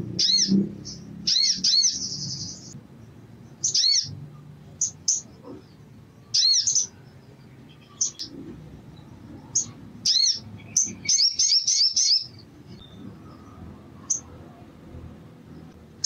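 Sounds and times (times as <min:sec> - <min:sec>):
bird high chirps: 0:00.1 - 0:02.8, 0:03.4 - 0:14.3.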